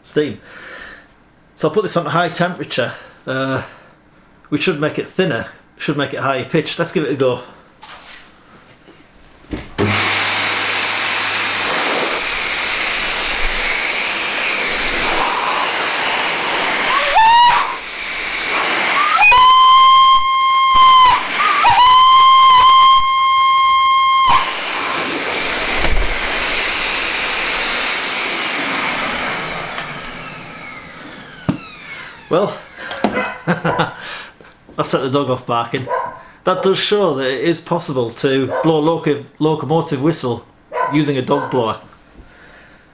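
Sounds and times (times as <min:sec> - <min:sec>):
electric blower air rushing: 0:09.7 - 0:33.2
locomotive whistle: 0:16.9 - 0:17.8, 0:18.9 - 0:24.7.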